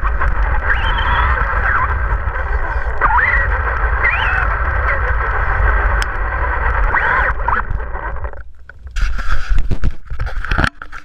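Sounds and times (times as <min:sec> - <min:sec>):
rc car motor whining: 0:00.0 - 0:06.2
tyre and wind rumble: 0:00.0 - 0:11.0
knocks and rubbing at camera: 0:08.8 - 0:11.0.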